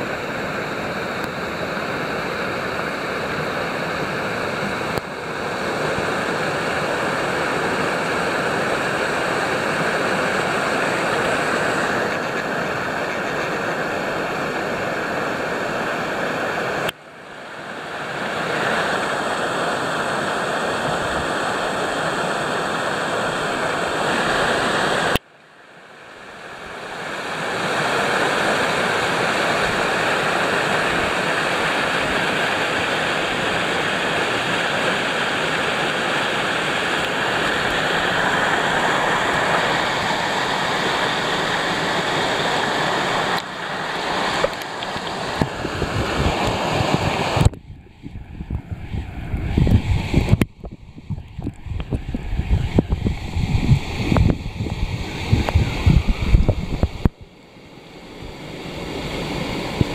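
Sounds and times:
small waterfall splashing: 0.0s - 25.2s, 26.3s - 47.6s.

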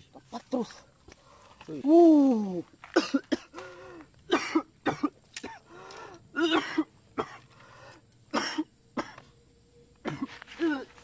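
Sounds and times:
man grunting and gasping: 3.5s - 4.1s.

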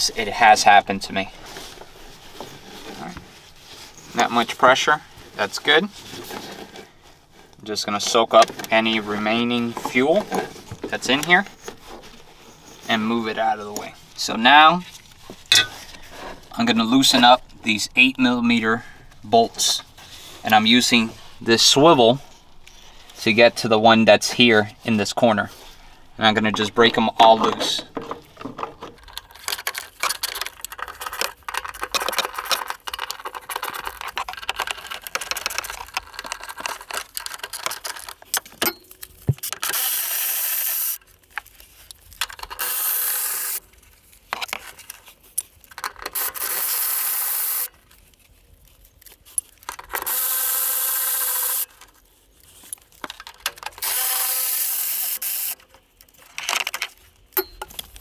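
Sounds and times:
bolts spun out with socket tool: 39.4s - 41.0s, 42.5s - 43.6s, 46.1s - 47.7s, 49.9s - 51.7s, 53.8s - 55.6s
ratchet clicking: 39.4s - 41.0s, 42.5s - 43.6s, 46.2s - 47.7s, 49.9s - 51.7s, 53.8s - 55.6s.

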